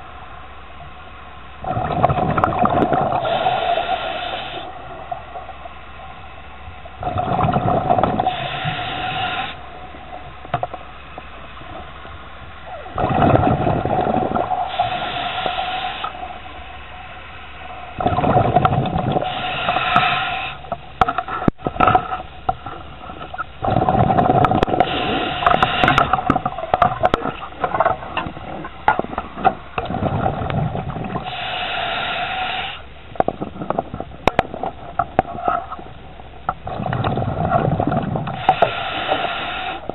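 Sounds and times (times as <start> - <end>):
exhaled air bubbling: 0.0 - 39.9
scuba regulator breathing underwater: 3.0 - 4.8, 7.0 - 9.6, 13.0 - 16.4, 18.0 - 20.6, 23.6 - 26.3, 31.1 - 32.9, 38.3 - 39.9.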